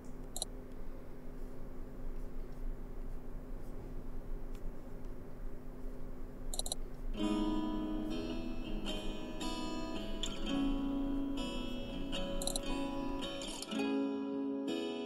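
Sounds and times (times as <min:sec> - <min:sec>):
room hum: 0:00.0 - 0:14.1
computer mouse clicks: 0:06.5 - 0:06.8, 0:12.4 - 0:12.6
plucked acoustic guitar music: 0:07.2 - 0:15.0.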